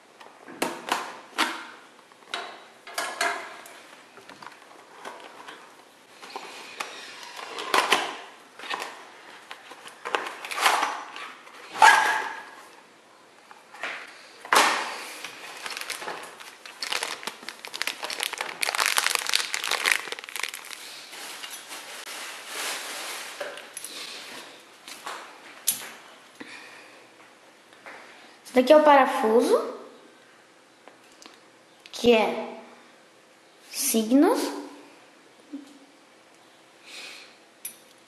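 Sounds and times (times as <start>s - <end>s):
plastic bag crinkling: 14.9s - 23.8s.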